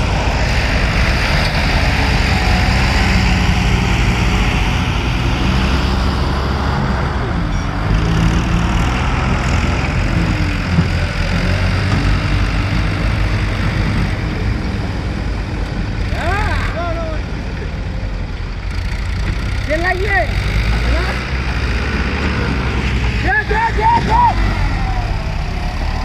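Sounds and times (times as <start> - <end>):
diesel tractor engine running: 0.0 - 26.0.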